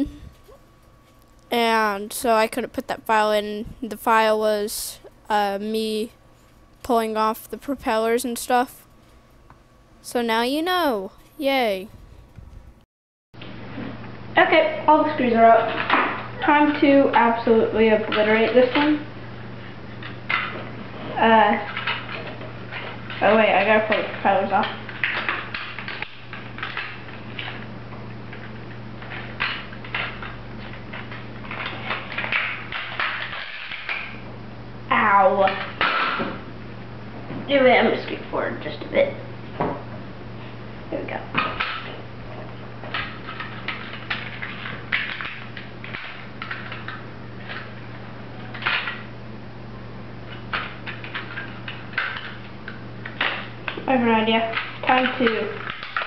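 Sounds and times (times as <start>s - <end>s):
low hum: 0.0s - 12.8s
steady low hum: 0.0s - 12.8s, 13.4s - 56.0s.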